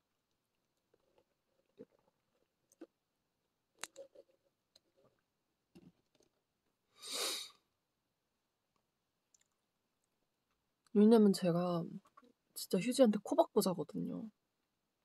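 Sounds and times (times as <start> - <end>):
person sniffing through nose: 7.0 - 7.6.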